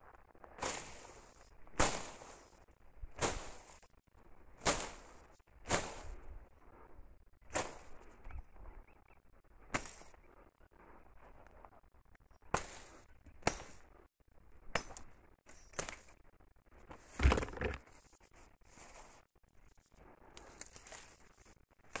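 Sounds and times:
footsteps crunching through dry grass: 17.0s - 19.2s, 20.4s - 21.6s.

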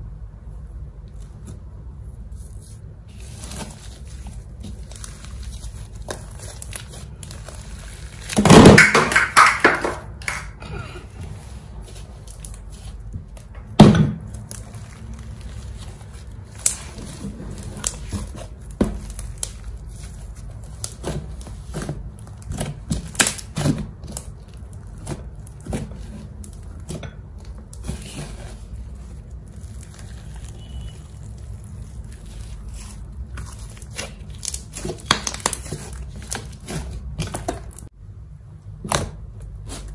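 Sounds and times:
slime squishing: 0.7s - 37.9s, 38.8s - 39.9s
sharp slime pop: 8.3s - 10.5s.

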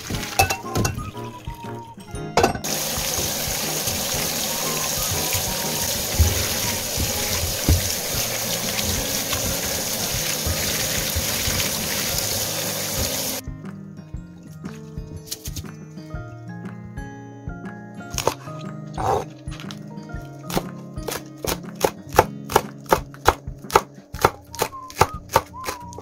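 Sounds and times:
tap water running into a strainer: 0.0s - 13.4s
soft background music: 0.0s - 26.0s.

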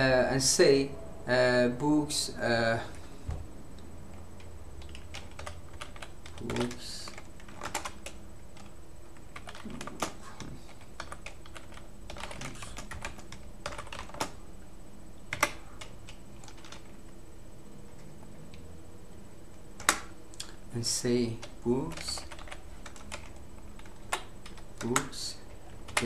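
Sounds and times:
keyboard keys clicking: 4.4s - 14.4s, 15.3s - 16.9s, 21.3s - 25.2s.

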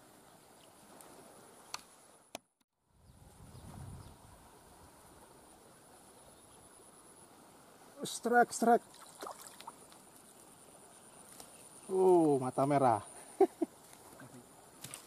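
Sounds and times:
high insect drone: 4.3s - 15.0s.

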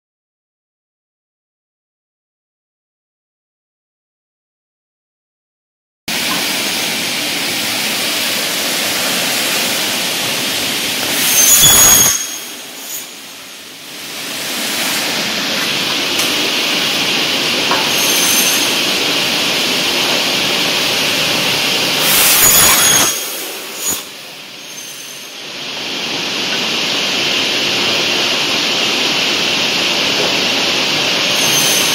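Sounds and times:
cutting machine saw blades running: 6.1s - 31.9s
saw screeching through metal: 8.7s - 13.6s, 17.7s - 19.3s, 20.9s - 25.4s, 31.2s - 31.9s.

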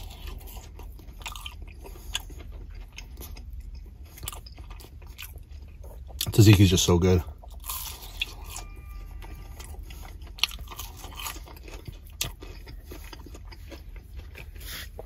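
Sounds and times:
chewing crunchy food: 0.0s - 15.0s.

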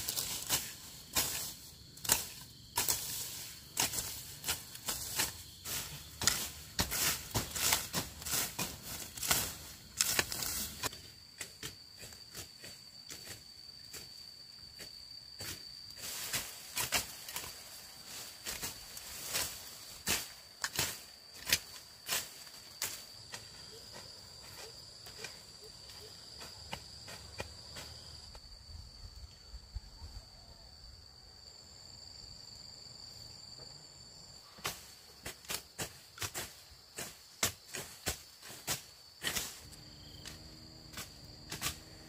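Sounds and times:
rustling and scraping strokes: 0.0s - 11.0s, 15.4s - 25.5s, 34.6s - 42.0s
high-pitched insect trill: 0.0s - 42.0s.

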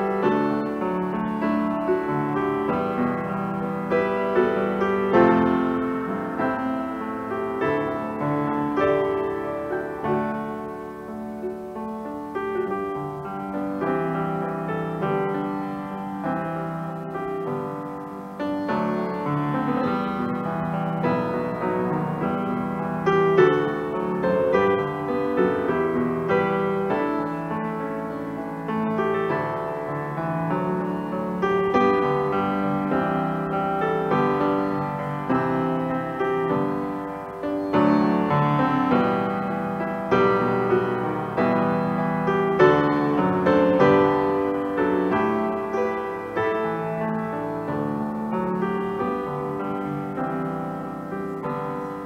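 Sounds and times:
solo grand piano piece: 0.0s - 52.0s.

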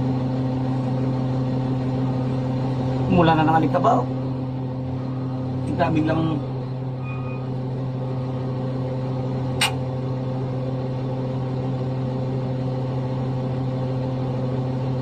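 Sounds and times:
diesel engine drone: 0.0s - 15.0s
sharp click: 9.6s - 9.8s.

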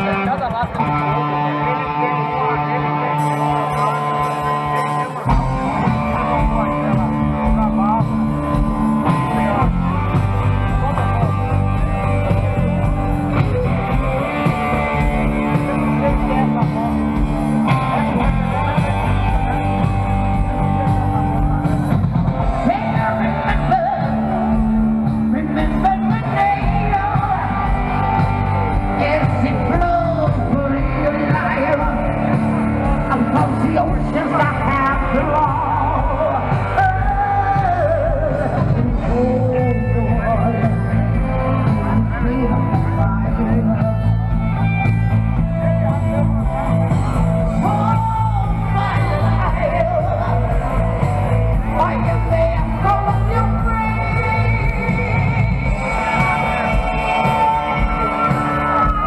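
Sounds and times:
rock music with singing: 0.0s - 59.0s.

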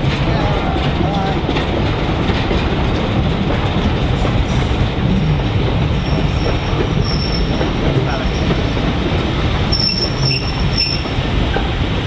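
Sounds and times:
train wheels rumbling on rails: 0.0s - 12.0s
high-pitched wheel squeals: 6.1s - 7.6s, 9.7s - 11.2s.

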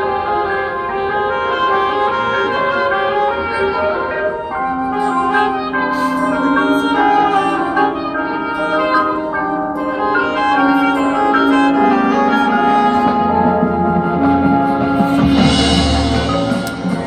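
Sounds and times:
brass sustained chords: 0.0s - 17.0s
percussion crashes: 14.6s - 17.0s.

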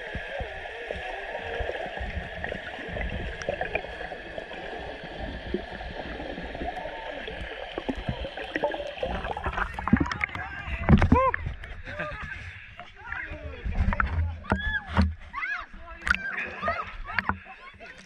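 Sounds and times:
muffled underwater hiss: 0.0s - 12.9s.

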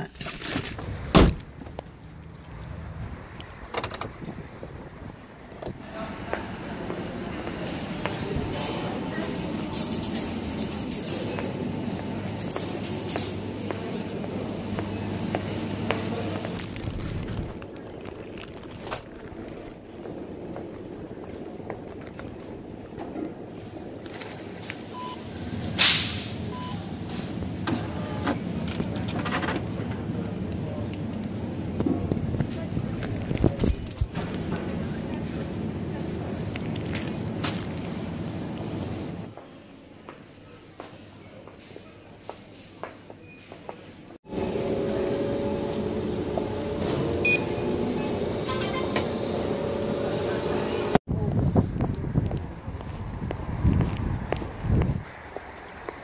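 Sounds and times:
low outdoor rumble: 13.4s - 25.7s
short touchscreen beep: 47.2s - 47.6s.

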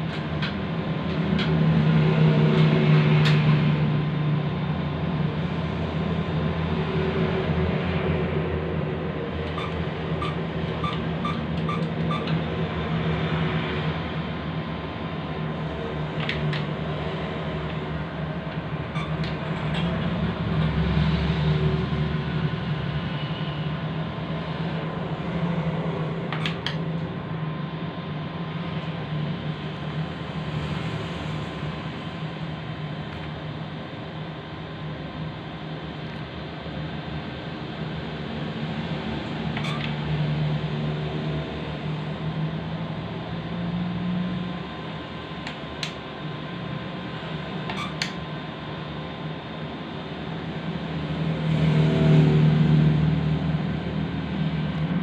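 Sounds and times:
steady mechanical hum: 0.0s - 55.0s
atm keypad beeping: 9.4s - 12.5s, 18.9s - 19.5s, 26.4s - 26.8s, 39.6s - 40.0s.

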